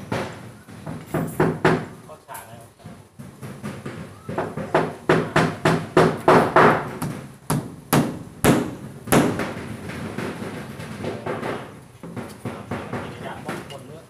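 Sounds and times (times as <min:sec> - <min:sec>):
hammers tapping nails into wood: 0:00.0 - 0:02.1, 0:02.8 - 0:14.0.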